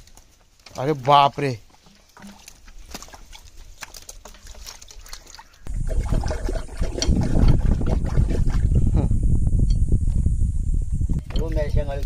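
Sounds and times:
trickling water: 0.8s - 9.0s
water sloshing: 0.9s - 8.8s
hands splashing in muddy water: 1.9s - 8.6s.

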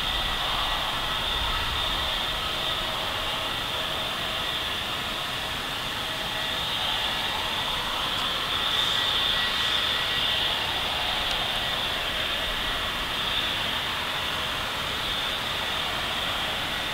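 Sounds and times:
jet engines idling: 0.0s - 16.9s.

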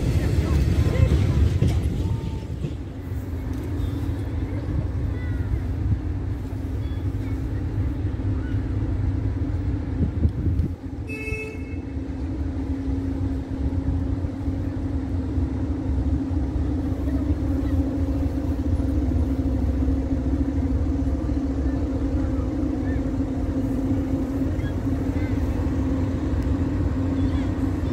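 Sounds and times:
diesel locomotive engine running: 0.0s - 27.9s.

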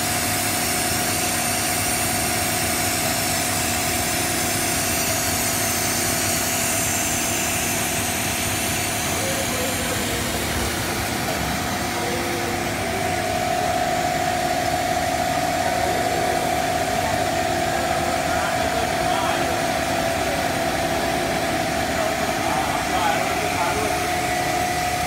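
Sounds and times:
machinery running: 0.0s - 25.0s
mid-pitched whine: 0.0s - 25.0s.

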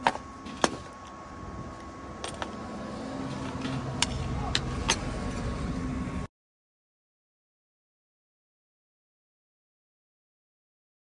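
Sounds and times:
vehicle engine hum: 0.0s - 6.3s
sharp clicks and knocks: 3.4s - 5.2s.

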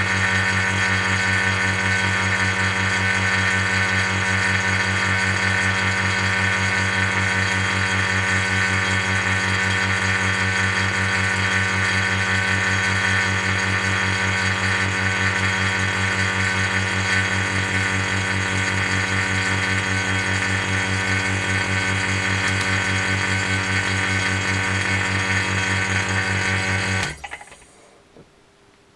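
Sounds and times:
low mains hum: 27.2s - 28.9s.

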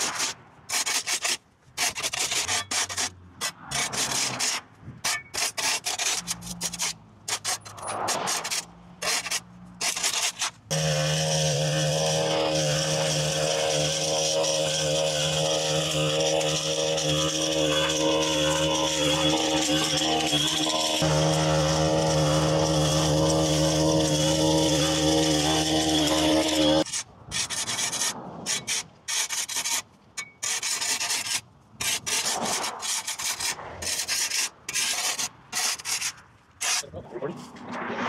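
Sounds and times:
scraping rubbing sounds: 0.0s - 10.7s, 11.7s - 38.0s
small engine running: 10.0s - 26.9s.

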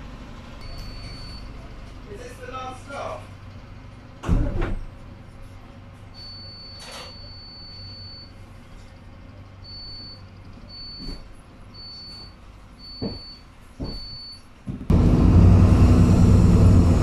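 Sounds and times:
bus engine idling: 0.0s - 6.7s, 14.9s - 17.0s.

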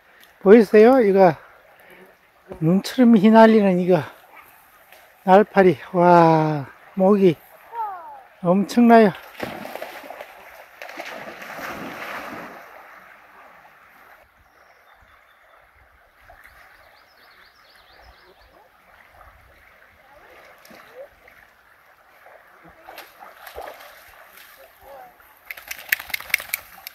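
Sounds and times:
stream flowing: 0.0s - 26.9s
dog splashing in water: 9.2s - 13.6s, 22.1s - 26.9s.

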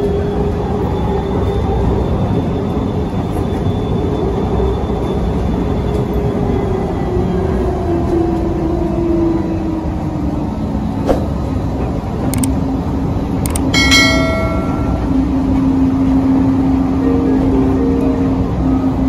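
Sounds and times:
train rumble and motor hum: 0.0s - 19.0s
sound effect clicks: 12.3s - 12.6s, 13.4s - 13.7s
bell-like chime: 13.8s - 15.1s.

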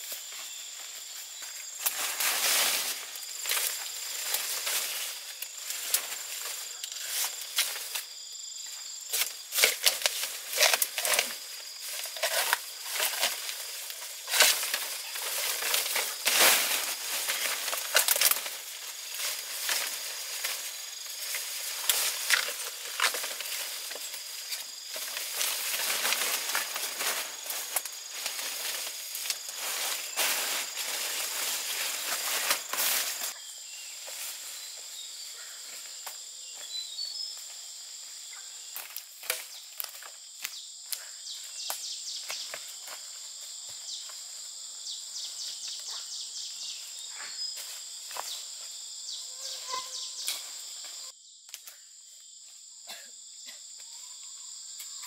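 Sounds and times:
high insect drone: 0.0s - 55.0s
dry plants crackling and snapping: 1.8s - 8.0s, 9.2s - 33.3s.

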